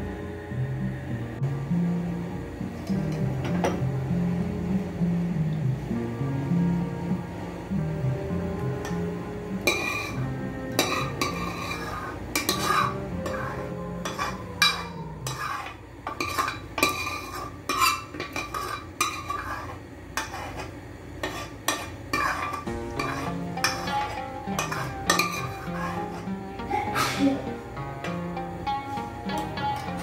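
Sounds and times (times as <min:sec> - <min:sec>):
metal spoon scraping saucepan: 0:09.6 - 0:26.4.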